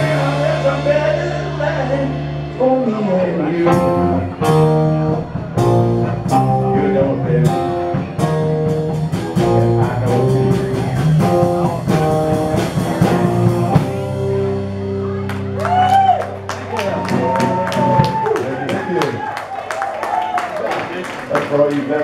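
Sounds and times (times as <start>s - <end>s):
rock band playing: 0.0s - 20.9s
drum and cymbal hits: 7.5s - 14.4s.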